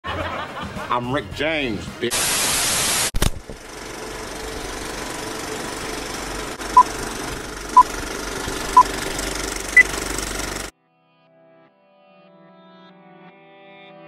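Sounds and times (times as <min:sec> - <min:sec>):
film projector clattering: 0:03.5 - 0:10.7.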